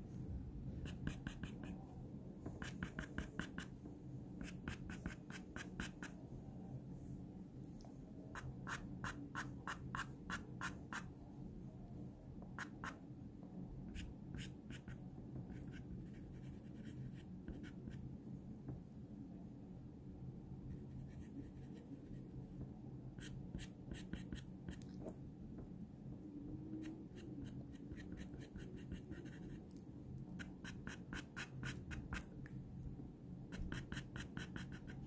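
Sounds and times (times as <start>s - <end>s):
pencil scratching on paper: 0.8s - 1.8s, 2.6s - 3.7s, 4.4s - 6.2s, 8.4s - 11.1s, 26.8s - 29.6s, 30.4s - 32.2s, 33.5s - 35.0s.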